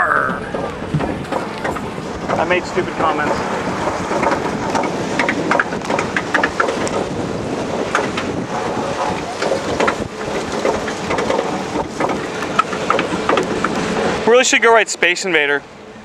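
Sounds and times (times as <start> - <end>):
wind buffeting microphone: 0.0 - 14.8
roller coaster car rattling: 0.0 - 16.0
sharp clicks and knocks: 0.3 - 2.5, 3.1 - 7.1, 7.9 - 8.3, 9.0 - 13.8.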